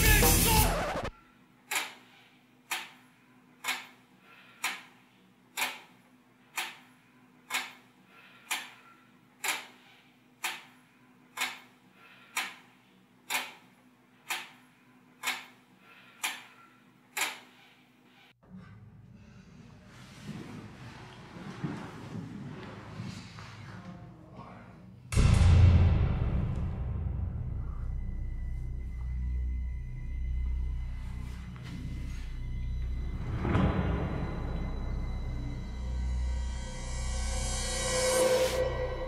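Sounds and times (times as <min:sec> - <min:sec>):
clock ticking: 0:01.7 - 0:02.1, 0:02.7 - 0:04.0, 0:04.6 - 0:15.6.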